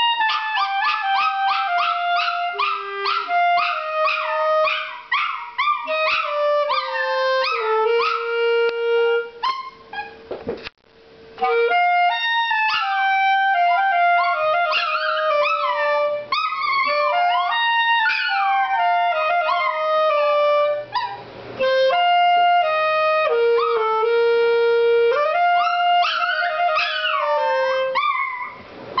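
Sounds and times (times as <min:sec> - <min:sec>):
clarinet slow melody: 0:00.0 - 0:04.9, 0:05.8 - 0:10.0, 0:11.4 - 0:21.0, 0:21.6 - 0:28.5
dog howling and yipping: 0:00.0 - 0:08.3, 0:09.4 - 0:10.2, 0:12.6 - 0:13.0, 0:13.8 - 0:19.9, 0:20.9 - 0:21.2, 0:23.5 - 0:23.8, 0:25.5 - 0:28.6.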